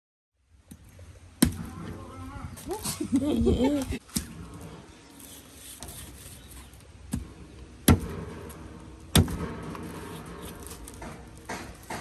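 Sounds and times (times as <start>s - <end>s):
machete chopping: 1.4s - 1.7s, 9.1s - 9.8s.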